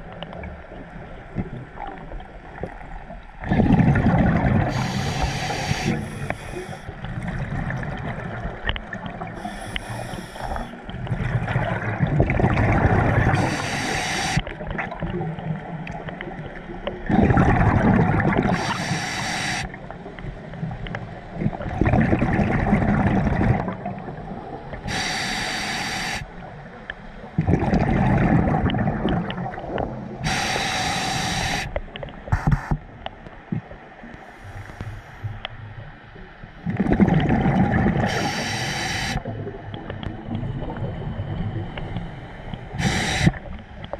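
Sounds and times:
gurgling bubbles: 0.0s - 25.0s, 27.4s - 31.3s, 36.6s - 43.9s
breathing gear hissing: 4.7s - 6.8s, 9.4s - 10.7s, 13.4s - 14.4s, 18.6s - 19.7s, 24.9s - 26.2s, 30.3s - 31.7s, 38.1s - 39.2s, 42.8s - 43.4s.

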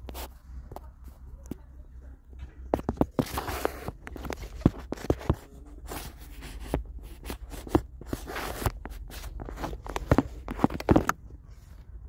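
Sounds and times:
rustling and scraping: 0.0s - 12.0s
plastic clicks and knocks: 7.6s - 11.4s.

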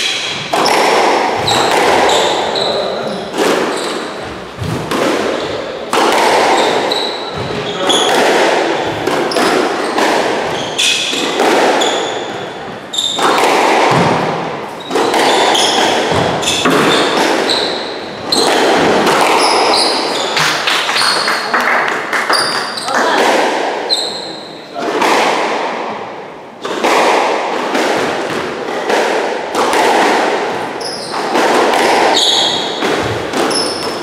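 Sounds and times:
squash ball hits echoing: 0.0s - 34.0s
shoes squeaking on hardwood: 1.4s - 4.8s, 6.5s - 8.2s, 8.8s - 13.3s, 14.7s - 21.3s, 30.8s - 31.3s, 32.1s - 34.0s.

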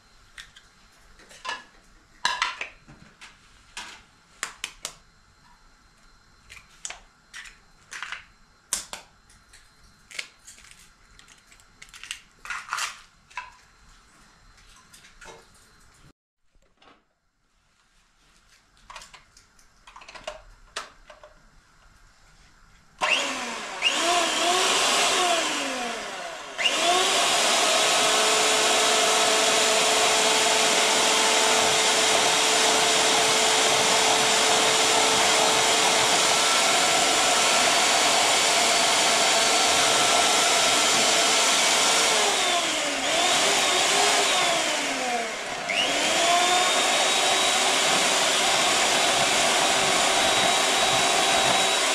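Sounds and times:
electric mixer whine: 23.0s - 51.9s.

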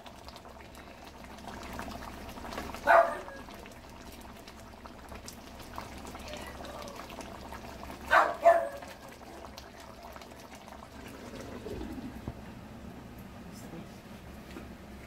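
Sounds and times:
curry bubbling in a pan: 0.0s - 12.5s
dog barking: 2.8s - 3.4s, 8.1s - 9.0s.

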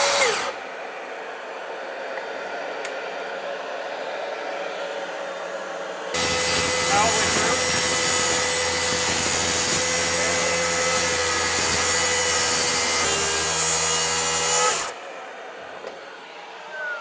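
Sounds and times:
track saw cutting wood: 0.0s - 0.6s, 6.1s - 17.0s.

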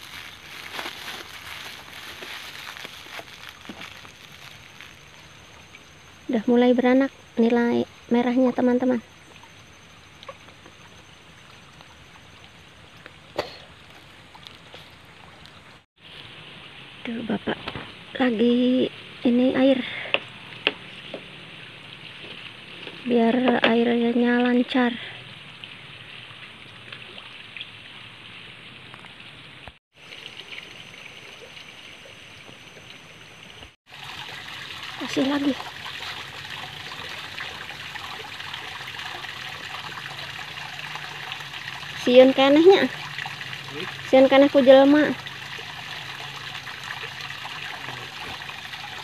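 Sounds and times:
water trickling into pond: 0.0s - 49.0s
light water drips: 9.0s - 15.8s, 24.4s - 29.4s.

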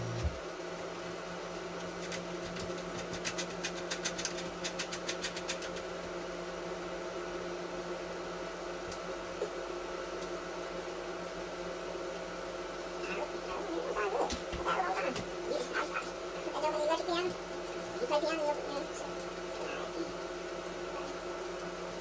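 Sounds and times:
mechanical hum: 0.0s - 22.0s.

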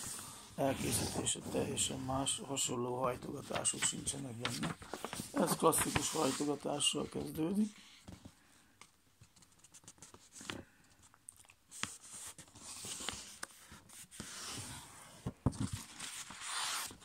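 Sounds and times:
paper rustling and crinkling: 0.6s - 8.3s, 11.7s - 17.0s.

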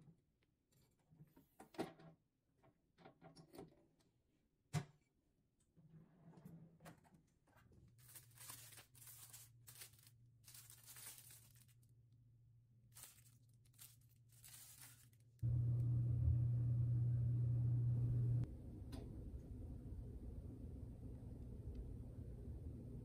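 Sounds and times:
plastic wrapping crinkling: 7.9s - 12.0s, 12.8s - 15.4s
loud steady low hum: 15.4s - 23.0s.

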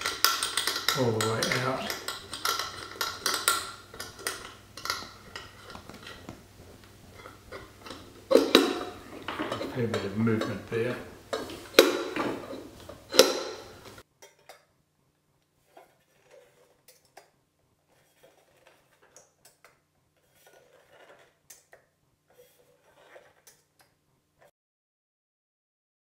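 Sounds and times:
metal clinks and knocks: 0.0s - 6.3s, 7.1s - 14.6s.

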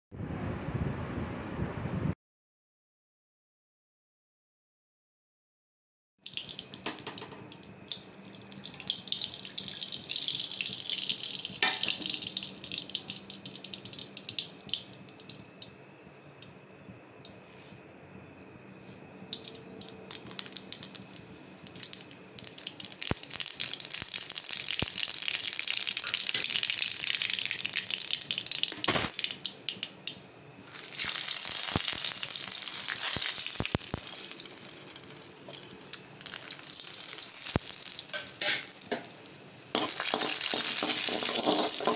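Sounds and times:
hot oil sizzling in a pan: 6.3s - 15.5s, 20.1s - 21.1s, 21.7s - 41.9s
mustard seeds crackling and popping: 6.3s - 15.7s, 19.3s - 41.9s.

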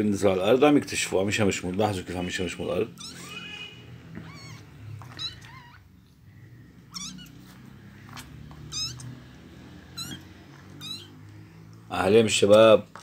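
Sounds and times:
kittens mewing: 2.9s - 11.8s.

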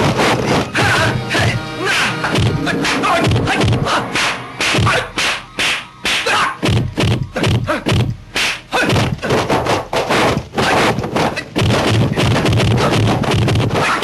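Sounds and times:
punch and kick impacts: 4.6s - 14.0s.

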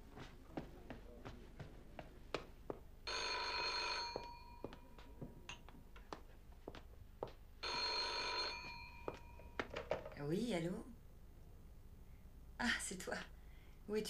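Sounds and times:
telephone bell ringing: 3.1s - 4.8s, 7.6s - 9.6s.

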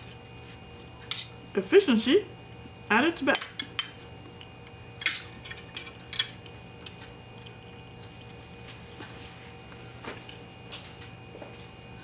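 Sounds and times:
spoon and fork clinking on bowl: 5.0s - 6.4s.

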